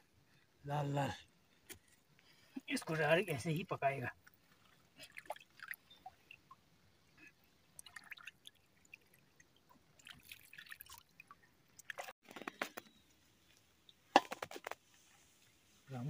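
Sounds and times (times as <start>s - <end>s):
water splashing and dripping: 4.2s - 12.2s.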